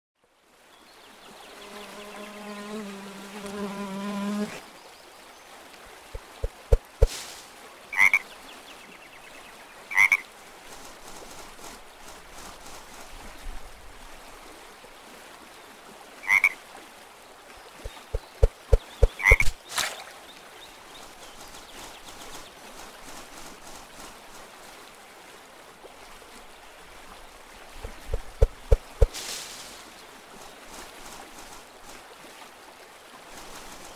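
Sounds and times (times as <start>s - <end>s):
frog croaking: 8.0s - 8.2s, 9.9s - 10.2s, 16.2s - 16.6s, 19.0s - 19.5s.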